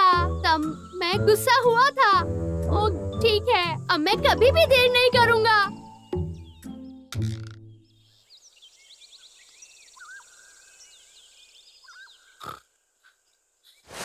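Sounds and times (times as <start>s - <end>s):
birds chirping and whistling: 4.4s - 12.4s.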